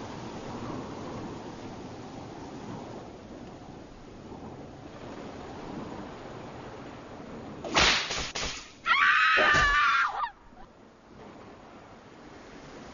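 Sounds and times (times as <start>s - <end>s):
surf washing: 0.0s - 12.9s.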